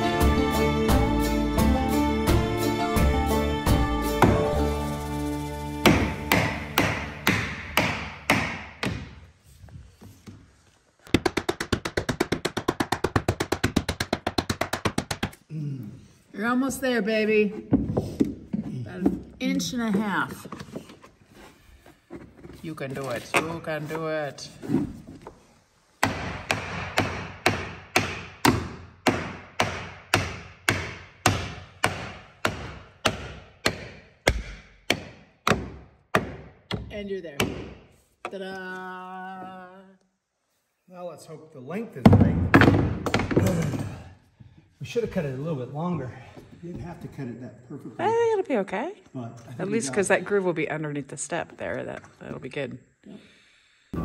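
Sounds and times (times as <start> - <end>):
rubber mallet striking metal bar: 5.8 - 9.2, 26.0 - 37.8.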